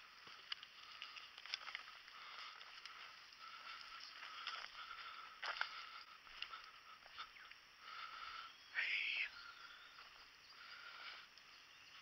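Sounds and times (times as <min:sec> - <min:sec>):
insects chirping faintly: 0:00.0 - 0:12.0.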